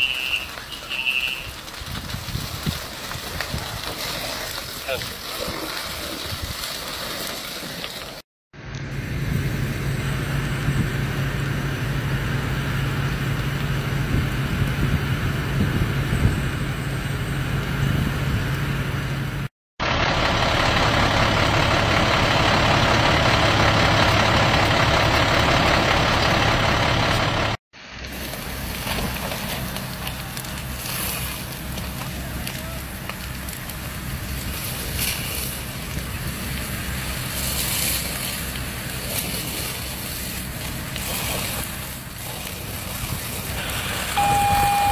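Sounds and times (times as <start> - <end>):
diesel engine running: 7.3 - 44.9
low hum: 8.6 - 44.9
rushing hiss: 36.9 - 44.2.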